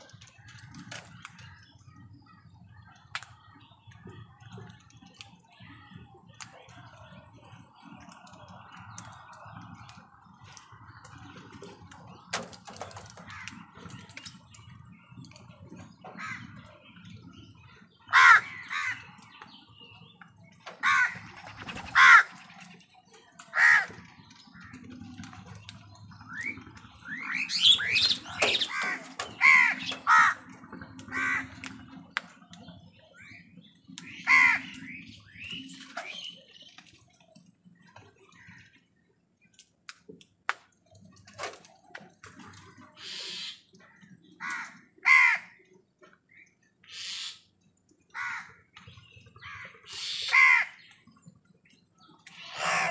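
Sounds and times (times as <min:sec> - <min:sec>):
crows cawing: 0:13.2 - 0:13.6, 0:16.1 - 0:16.6, 0:18.1 - 0:19.1, 0:20.7 - 0:21.3, 0:21.9 - 0:22.4, 0:23.5 - 0:24.0, 0:28.5 - 0:31.6, 0:34.1 - 0:34.8, 0:44.4 - 0:45.7, 0:48.1 - 0:48.6, 0:49.4 - 0:50.9, 0:52.4 - 0:52.9.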